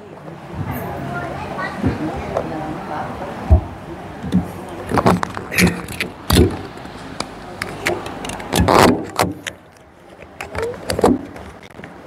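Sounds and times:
microphone handling noise: 0:03.5 - 0:12.0.

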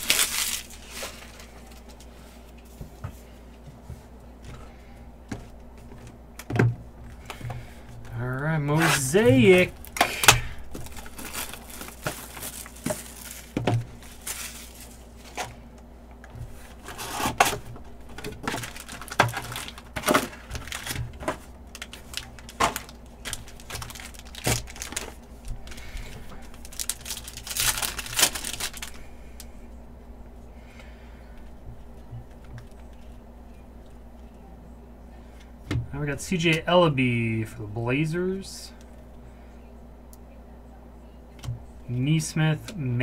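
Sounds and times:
plastic wrap crinkling and tearing: 0:00.0 - 0:02.1, 0:08.6 - 0:15.6, 0:16.7 - 0:29.5.

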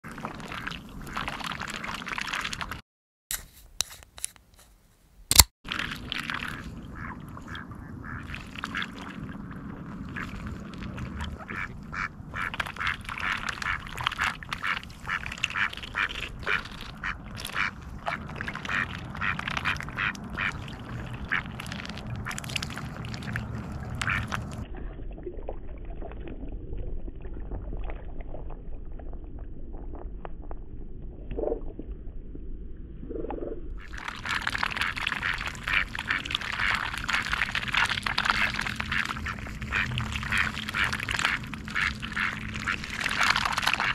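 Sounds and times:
sharp click: 0:05.3 - 0:05.5
low steady rumble: 0:05.8 - 0:43.9
ducks quacking: 0:11.4 - 0:21.6, 0:24.0 - 0:24.6, 0:34.8 - 0:37.4, 0:38.2 - 0:43.9.

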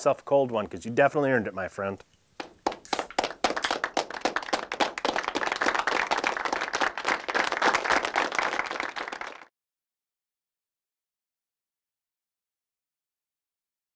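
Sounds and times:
crowd applause: 0:02.4 - 0:09.5.

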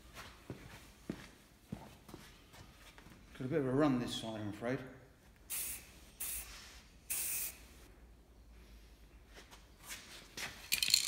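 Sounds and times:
aerosol spray can hissing: 0:05.5 - 0:07.7.

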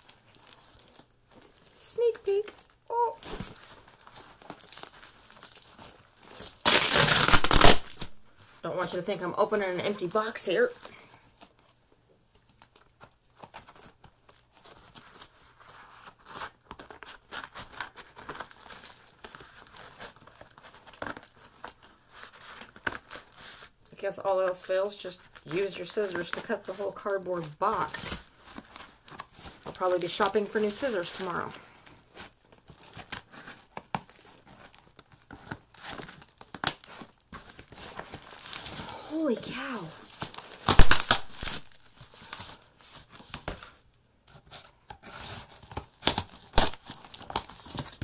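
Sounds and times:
packing tape crinkling and tearing: 0:00.0 - 0:11.8, 0:12.4 - 0:48.0
tape and cardboard tearing: 0:06.3 - 0:08.2, 0:35.3 - 0:43.7, 0:44.4 - 0:48.0.

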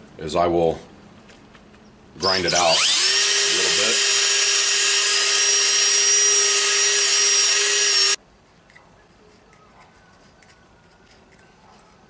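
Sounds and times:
cordless drill whining: 0:02.2 - 0:08.2.

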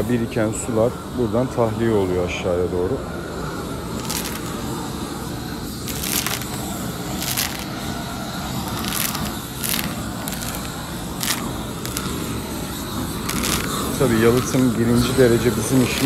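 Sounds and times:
low background rumble: 0:03.2 - 0:16.0
gritty crunches: 0:04.0 - 0:04.6, 0:05.8 - 0:07.8, 0:08.6 - 0:14.7.

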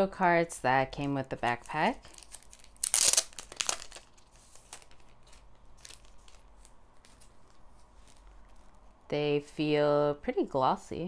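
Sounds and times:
plastic sleeve crinkling: 0:01.0 - 0:09.1.

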